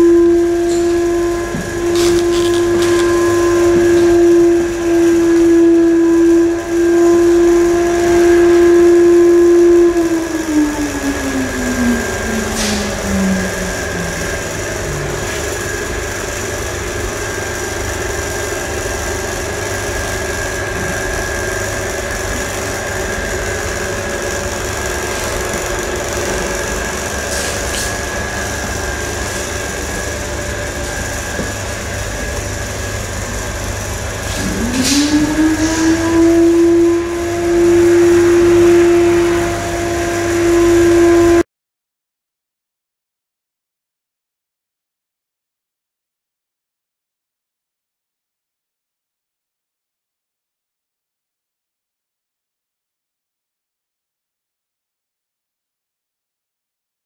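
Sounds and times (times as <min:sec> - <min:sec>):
electric motor whining: 0:00.0 - 0:41.4
machine hum and hiss: 0:00.0 - 0:41.4.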